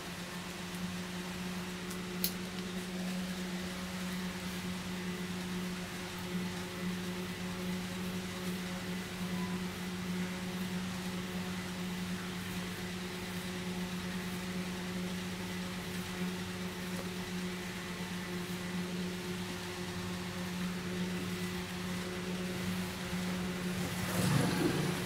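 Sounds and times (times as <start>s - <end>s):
electric motor humming: 0.0s - 25.0s.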